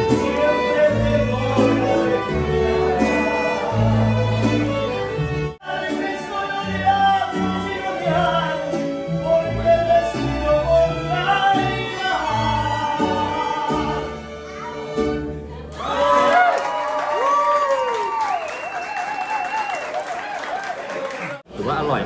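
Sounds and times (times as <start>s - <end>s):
person singing: 0.0s - 5.0s, 5.6s - 14.9s
stringed instruments: 0.0s - 15.9s.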